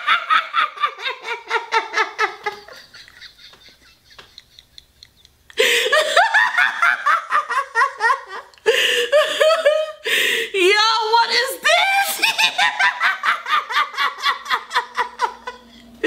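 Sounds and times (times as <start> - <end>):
woman laughing: 0.0 - 10.0, 11.6 - 15.7.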